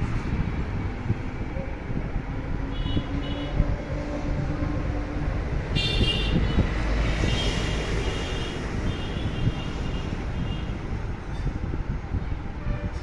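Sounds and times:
traffic rumble: 0.0s - 13.0s
vehicle horns tooting: 5.8s - 6.6s.

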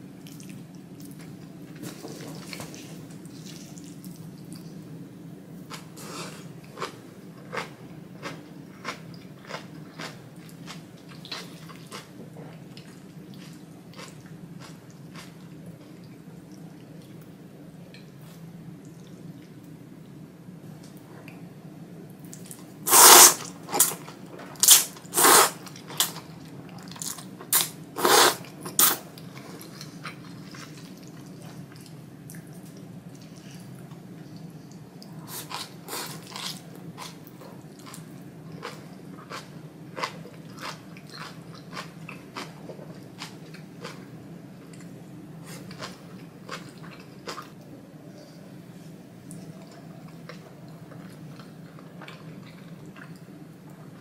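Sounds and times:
loud noodle slurping: 22.9s - 23.9s, 24.6s - 25.6s, 28.0s - 29.0s
chewing with wet mouth clicks: 36.3s - 44.0s, 49.2s - 53.8s.

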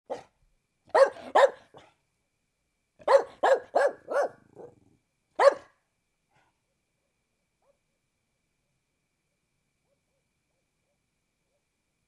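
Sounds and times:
dog barking: 0.1s - 1.9s, 3.0s - 4.8s, 5.4s - 5.8s, 9.8s - 10.3s.

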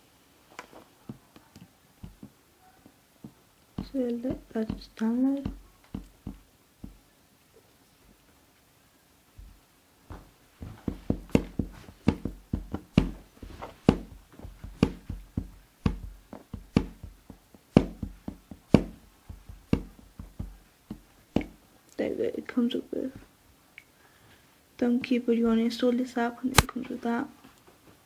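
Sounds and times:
knocking on hard surface: 3.2s - 7.0s, 10.1s - 21.6s.

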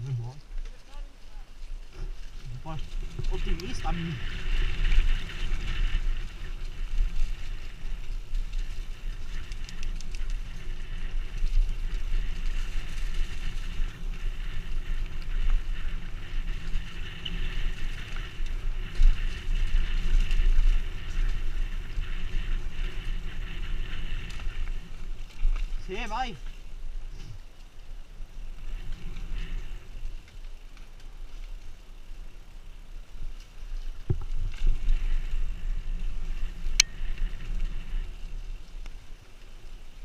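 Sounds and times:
tyres rumbling on dirt: 0.0s - 26.9s
wind buffeting microphone: 1.4s - 30.6s.

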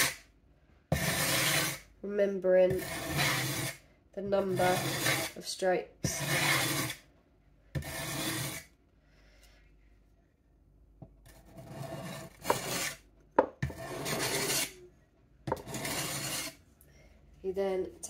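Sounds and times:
blade rasping on sharpening plate: 11.7s - 13.0s, 13.7s - 14.8s, 15.5s - 16.6s.

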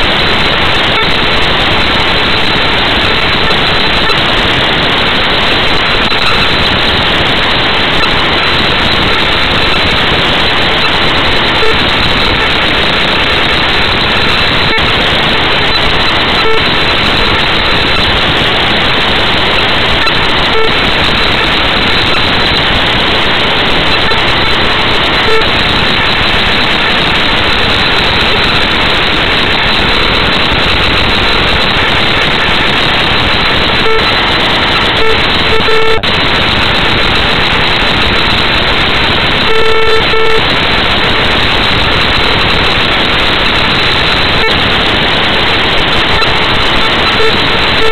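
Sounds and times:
loud static hiss: 0.0s - 47.9s
short beeps: 34.9s - 36.0s.

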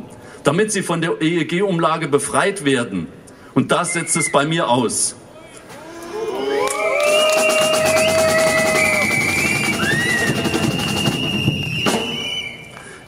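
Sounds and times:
whistle notes: 3.8s - 4.6s, 6.8s - 12.9s
fast rattling drum: 7.4s - 12.2s.

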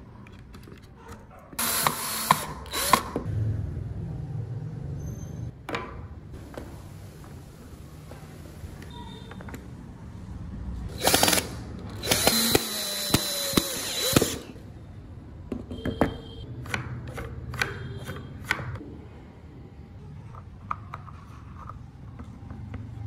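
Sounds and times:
cordless drill running: 1.6s - 3.2s, 10.9s - 14.6s.

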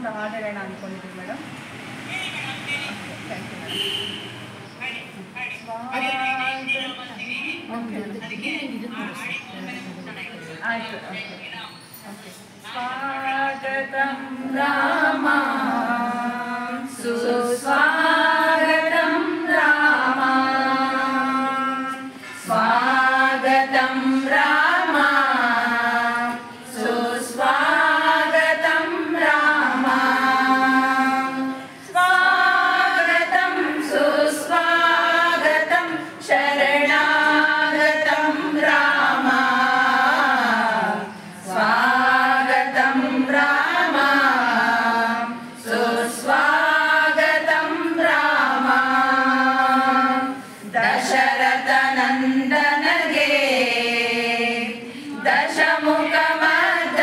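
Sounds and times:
women singing together: 12.6s - 57.0s.

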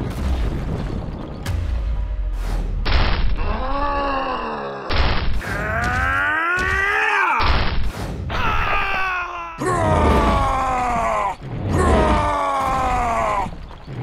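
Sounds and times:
sudden thuds: 0.0s - 3.4s
low rumble: 0.0s - 4.4s.

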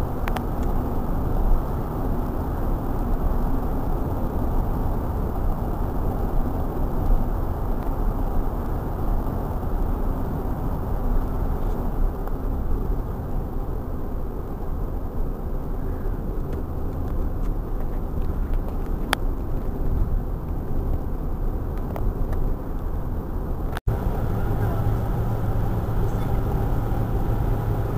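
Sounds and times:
car driving cabin rumble: 23.6s - 27.9s.

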